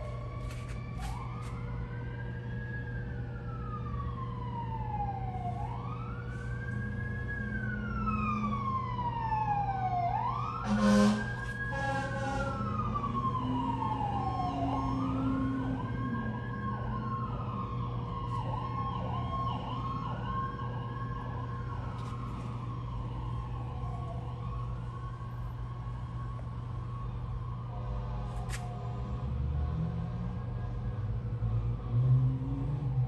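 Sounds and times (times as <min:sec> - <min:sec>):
yelping siren: 0:00.0 - 0:28.0
wailing siren: 0:00.0 - 0:33.0.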